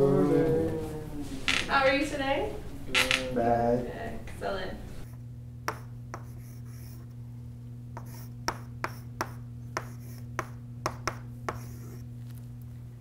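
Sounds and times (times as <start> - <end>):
steady low hum: 0.0 - 13.0
chalk tapping on blackboard: 5.7 - 7.0, 8.0 - 12.0
chalk scratching: 5.7 - 7.1, 8.0 - 12.1.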